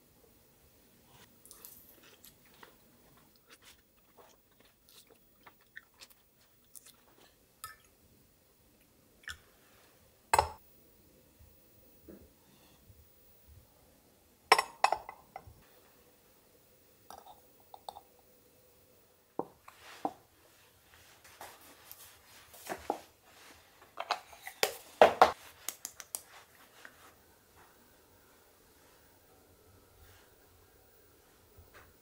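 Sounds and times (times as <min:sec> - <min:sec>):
soft rustling: 0:25.3 - 0:29.0.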